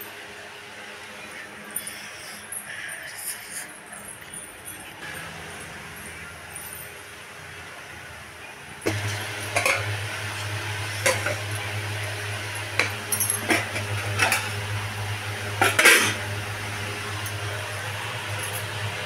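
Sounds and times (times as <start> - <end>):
steady low hum: 0.0 - 19.0
metal pot lids clinking: 8.8 - 11.8, 12.5 - 14.7, 15.5 - 16.4.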